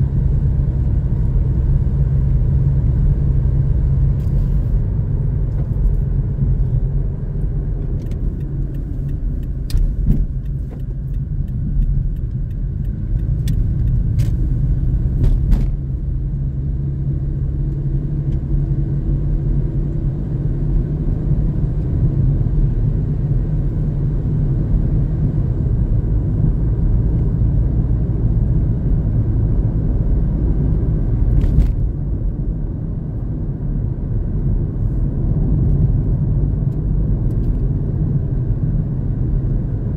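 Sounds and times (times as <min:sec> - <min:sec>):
car engine and tyre rumble: 0:00.0 - 0:39.9.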